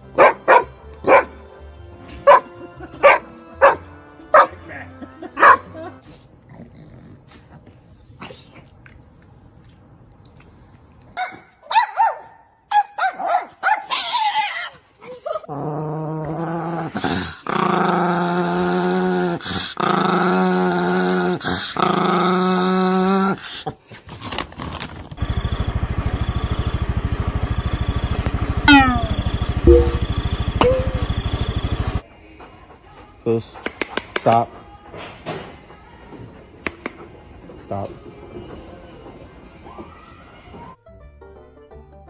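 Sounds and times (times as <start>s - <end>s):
dog squealing: 13.1s - 14.8s, 28.6s - 29.3s
dog growling cries: 13.9s - 23.7s, 27.6s - 32.0s
steady pulsing hum: 25.2s - 32.0s.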